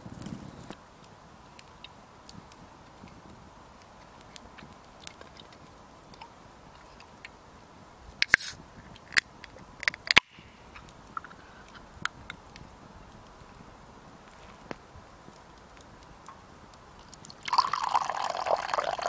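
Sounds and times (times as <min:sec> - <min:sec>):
campfire crackling and popping: 0:00.0 - 0:19.0.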